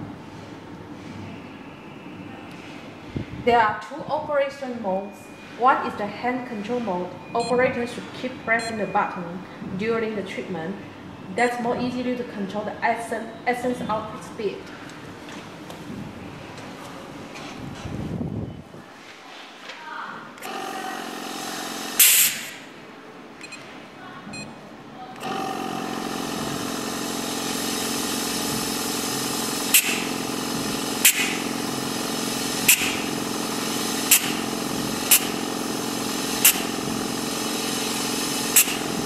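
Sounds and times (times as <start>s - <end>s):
high-pressure spurts: 20.4s - 22.7s, 25.2s - 39.0s
machine motor hum: 20.4s - 22.8s, 25.1s - 39.0s
sharp hiss: 22.0s - 22.7s, 29.7s - 30.1s, 31.0s - 31.4s, 32.6s - 33.1s, 38.4s - 38.9s.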